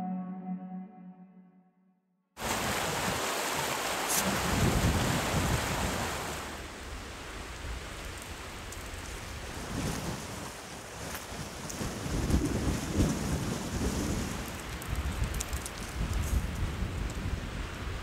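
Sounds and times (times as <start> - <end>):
wind buffeting microphone: 4.3 - 6.4, 9.0 - 18.0.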